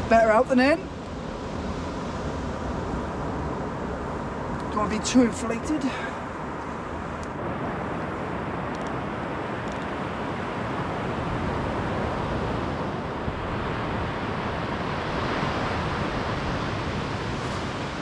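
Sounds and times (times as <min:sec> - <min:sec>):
wind on microphone: 0:00.0 - 0:18.0
surf breaking on beach: 0:10.6 - 0:18.0.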